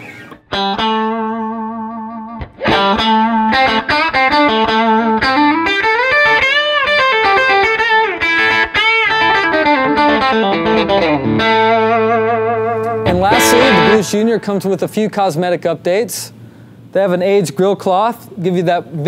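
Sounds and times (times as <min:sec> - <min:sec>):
electric guitar lead with string bends: 0:00.0 - 0:14.8.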